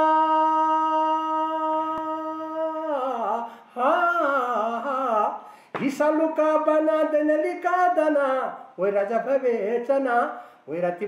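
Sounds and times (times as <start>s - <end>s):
man singing unaccompanied: 0.0s - 11.0s
man breathing: 3.4s - 3.8s, 5.4s - 5.8s, 10.3s - 10.7s.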